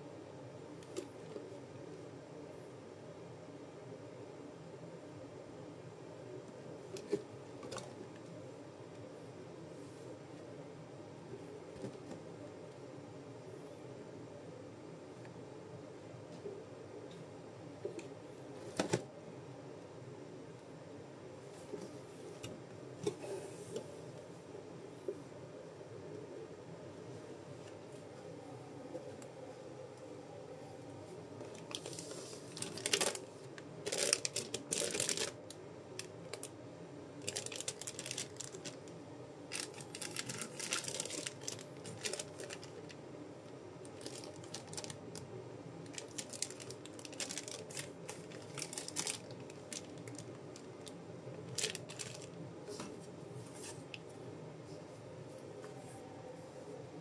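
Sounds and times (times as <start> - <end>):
packaging crinkling and tearing: 31.5 - 36.5, 37.2 - 38.9, 39.5 - 42.9, 43.9 - 45.2, 45.9 - 52.4.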